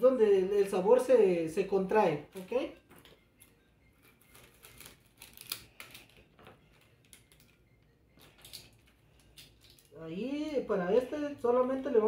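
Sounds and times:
plastic packet crinkling: 2.3s - 10.0s.

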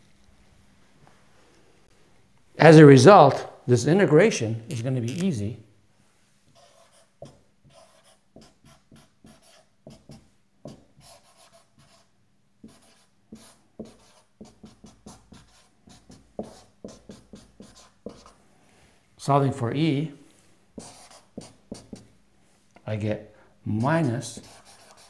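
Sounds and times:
marker writing on whiteboard: 6.5s - 18.4s, 20.8s - 22.1s, 23.8s - 25.0s.

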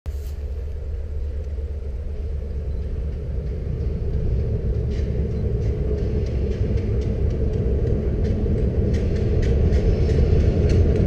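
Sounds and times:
diesel locomotive rumble: 0.1s - 11.0s.

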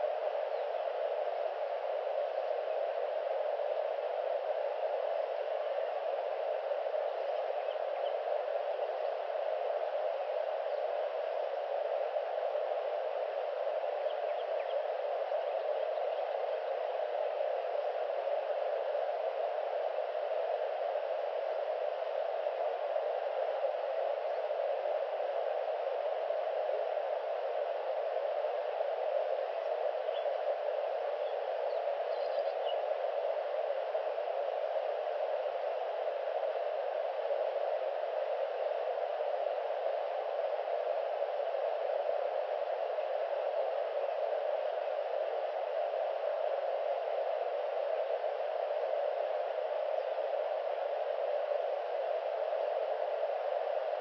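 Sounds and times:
steady hiss: 0.0s - 54.0s
faint high chirps: 31.2s - 32.9s.

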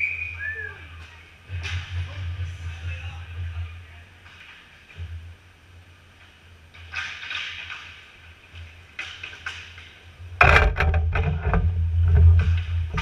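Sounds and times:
clatter of sticks and puck: 1.0s - 5.1s, 6.2s - 13.0s
low rumble: 1.4s - 4.2s.

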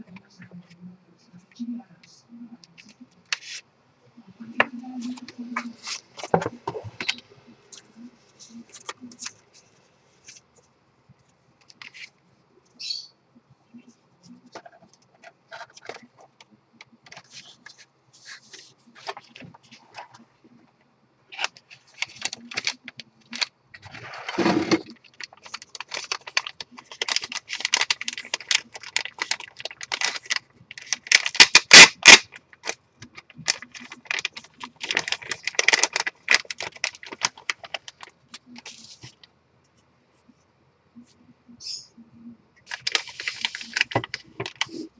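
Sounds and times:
packaging rubbing scrape: 21.3s - 32.8s, 42.7s - 44.9s
plastic bag crinkling: 21.3s - 39.3s, 42.6s - 44.9s.

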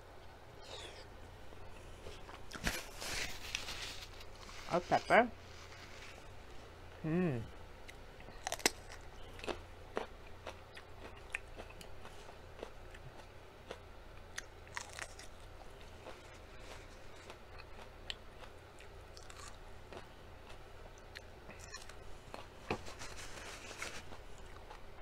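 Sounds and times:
crunching raw pepper: 7.9s - 22.4s.

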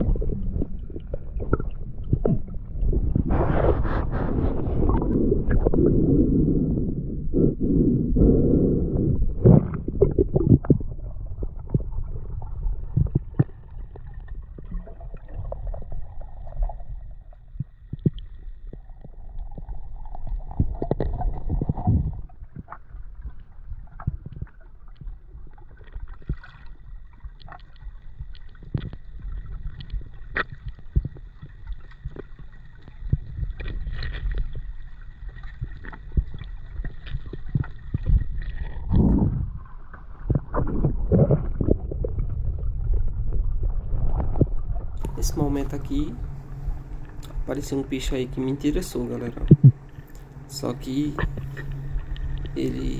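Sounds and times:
underwater clicks and knocks: 0.0s - 3.3s, 9.4s - 12.1s, 12.7s - 15.8s, 17.5s - 19.7s, 20.4s - 45.3s, 49.2s - 50.4s
underwater gurgling wash: 0.0s - 52.9s.

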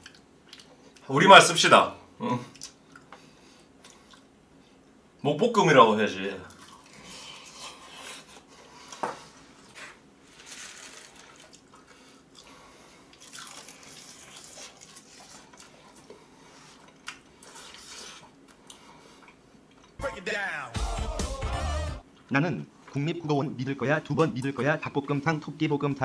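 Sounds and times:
chewing and slurping: 6.5s - 20.0s.

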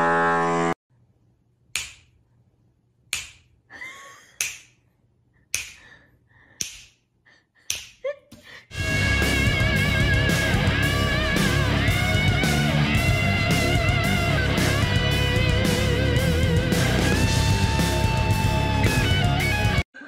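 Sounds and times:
sharp slaps: 1.7s - 2.2s, 3.1s - 3.6s, 4.4s - 4.8s, 5.5s - 5.9s, 6.6s - 7.0s, 7.7s - 8.0s
guitar music: 8.8s - 19.8s.

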